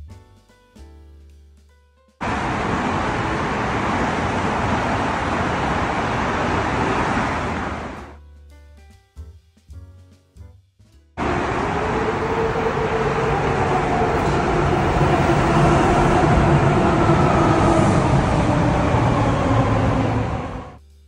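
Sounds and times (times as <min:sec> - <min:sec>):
train motor whine: 0:02.2 - 0:08.2, 0:11.2 - 0:20.8
train wheels on rail: 0:02.2 - 0:08.2, 0:11.2 - 0:20.8.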